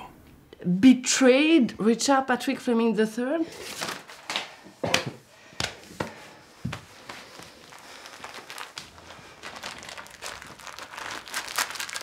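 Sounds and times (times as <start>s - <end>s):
faint rustling and handling: 5.8s - 12.0s.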